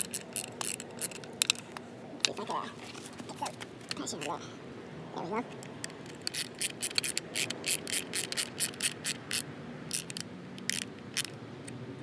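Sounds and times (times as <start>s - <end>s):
ratchet driver clicking: 0.0s - 1.6s, 5.8s - 11.4s.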